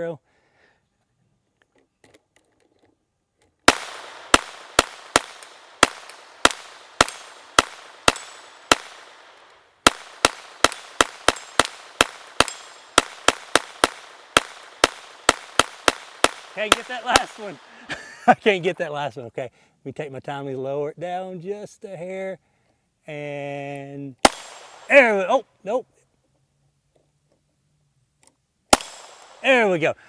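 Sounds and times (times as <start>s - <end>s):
gatling gun firing shots: 3.7s - 17.8s, 24.2s - 25.2s, 28.7s - 29.6s.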